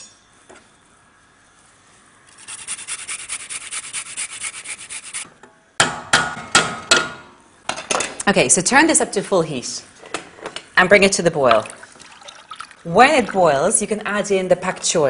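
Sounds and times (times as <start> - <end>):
ginger grating: 2.3 - 5.2.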